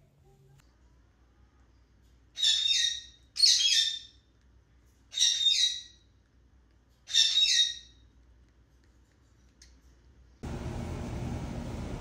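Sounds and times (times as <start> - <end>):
parakeet squawking harshly: 2.4 - 4.1.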